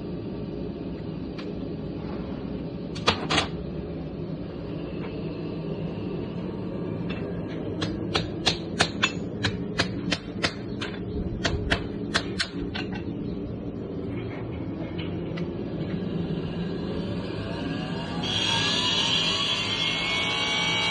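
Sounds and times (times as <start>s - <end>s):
steady machine hum: 0.0s - 20.9s
hammer striking horseshoe on anvil: 7.8s - 12.9s.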